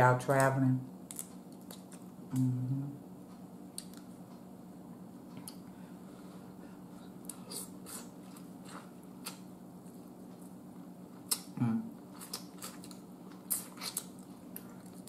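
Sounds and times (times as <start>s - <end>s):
faint low hum: 0.0s - 15.0s
wet eating clicks and smacks: 3.7s - 4.1s, 11.2s - 11.6s, 12.2s - 15.0s.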